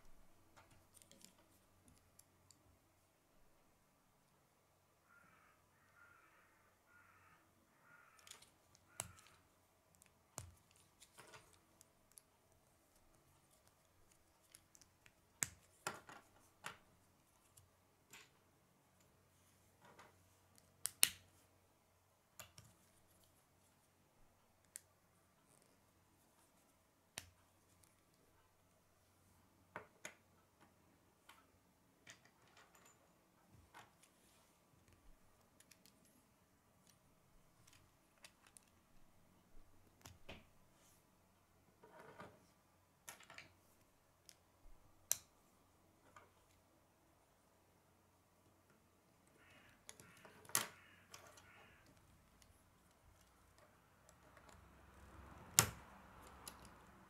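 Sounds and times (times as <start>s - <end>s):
plastic clicks and snaps: 20.5s - 21.3s.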